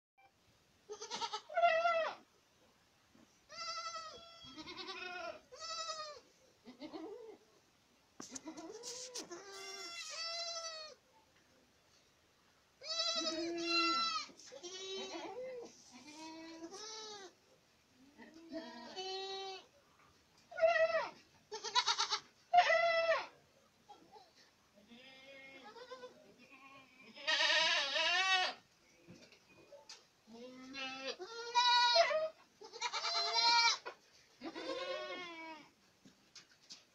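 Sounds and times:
goat kids bleating: 0.9s - 2.3s, 3.5s - 7.4s, 8.2s - 11.0s, 12.8s - 17.4s, 18.1s - 19.7s, 20.5s - 28.6s, 30.3s - 35.8s.

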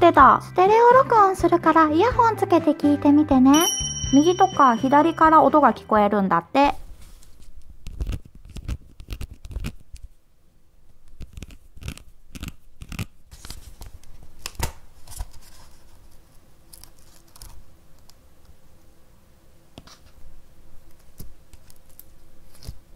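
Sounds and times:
plastic cup clicks and crinkles: 7.9s - 10.0s.

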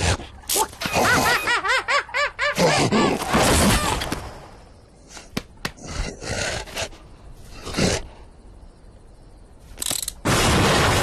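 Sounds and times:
sharp clicks: 9.8s - 10.2s.

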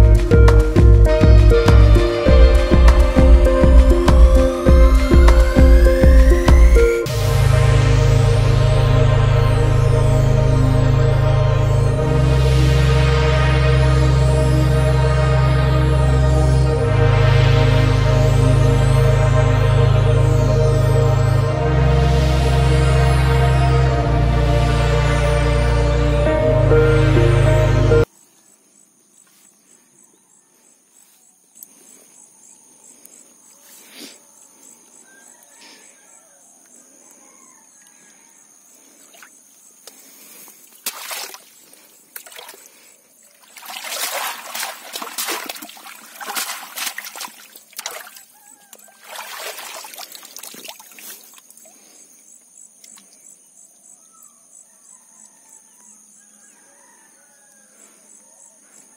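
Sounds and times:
water splashing and trickling: 38.8s - 52.1s.

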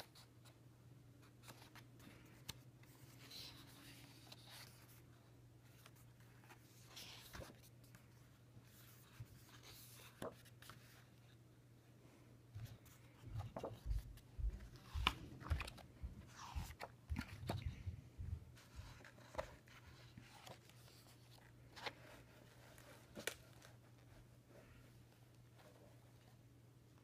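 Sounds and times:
faint low hum: 0.0s - 27.0s
book pages rustling: 1.2s - 11.4s, 12.6s - 17.9s, 18.5s - 26.4s.

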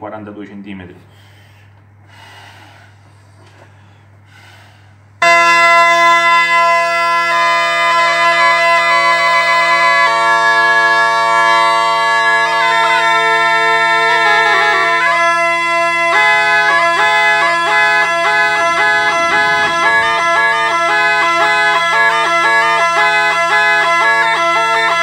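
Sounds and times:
faint puffs of air: 1.0s - 5.2s
bagpipe drones and melody: 5.2s - 25.0s.

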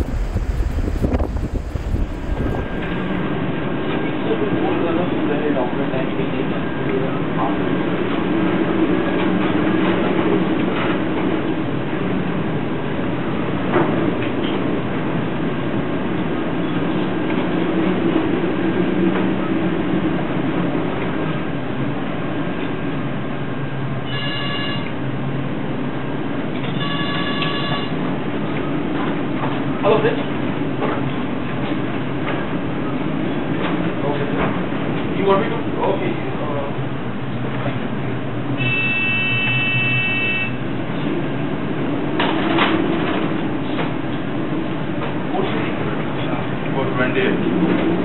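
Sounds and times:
low hum: 0.0s - 3.4s
surges of noise: 0.0s - 3.4s
storm wind and sea rushing: 0.0s - 4.2s
storm wind: 0.0s - 24.1s, 40.5s - 48.0s
heavy seas: 0.0s - 48.0s.

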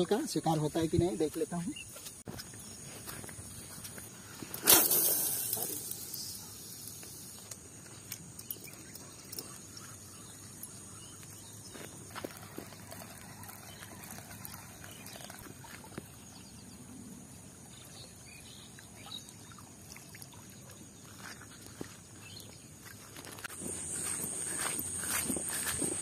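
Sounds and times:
high-pitched hiss: 0.1s - 8.8s, 23.5s - 26.0s.

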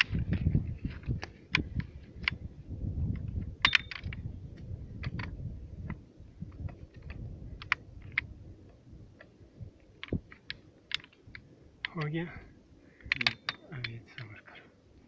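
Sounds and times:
ringing metallic clank: 3.6s - 4.1s
metal parts clicking and clinking: 3.6s - 4.2s, 13.0s - 14.3s.

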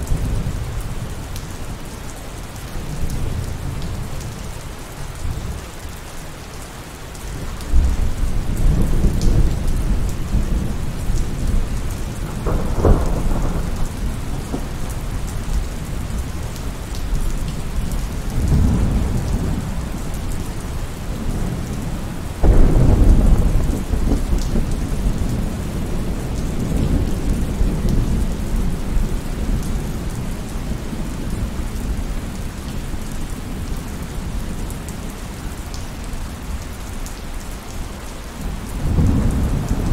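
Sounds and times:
steady rain: 0.0s - 39.9s
rolling thunder: 7.7s - 16.5s, 17.8s - 20.3s, 21.1s - 31.5s, 38.4s - 39.9s
sharp thunderclap: 12.2s - 14.7s, 22.4s - 25.4s.

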